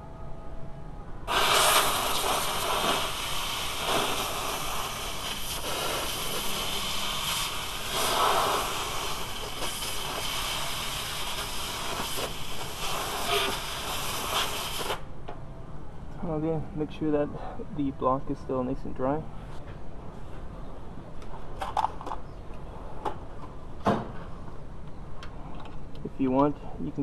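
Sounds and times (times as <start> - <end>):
compressed air hissing: 1.3 - 15.1.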